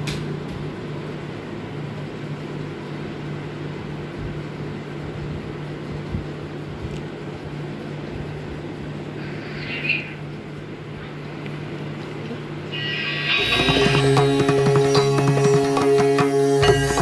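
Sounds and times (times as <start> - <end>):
machine-like hum: 0.0 - 17.0
even hiss: 8.9 - 10.4, 12.6 - 17.0.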